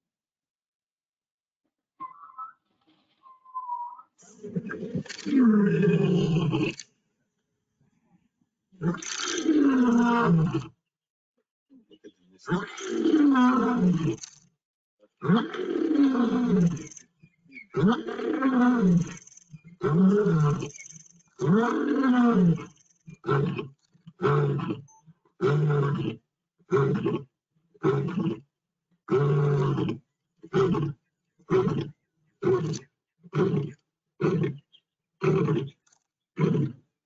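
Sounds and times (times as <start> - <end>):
lion roaring: 4.4 - 6.8, 8.8 - 10.7, 12.4 - 14.2, 15.2 - 16.9, 17.7 - 20.8, 21.4 - 24.8, 25.4 - 28.4, 29.1 - 34.6.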